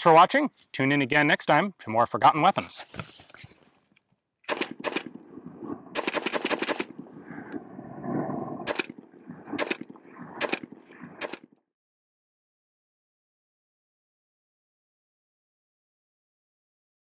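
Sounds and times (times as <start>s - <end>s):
machine gun shots with echo: 4.5s - 5.2s, 6.0s - 7.0s, 8.6s - 9.0s, 9.6s - 11.5s.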